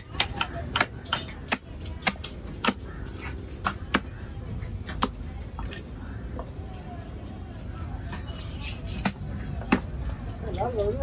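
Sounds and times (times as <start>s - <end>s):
knife chopping fish on wooden block: 0.2s - 2.9s.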